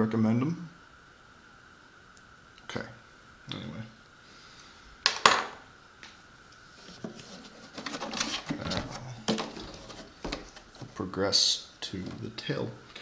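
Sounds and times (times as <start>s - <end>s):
small tools rubbing and clattering: 6.7s - 11.0s.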